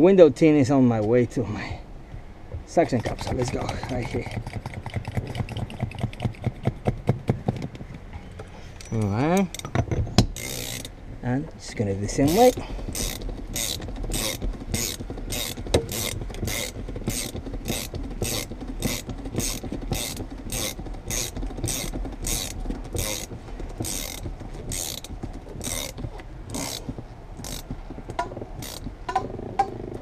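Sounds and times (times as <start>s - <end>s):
ratchet wrench clicking: 10.4s - 10.9s, 12.3s - 29.6s.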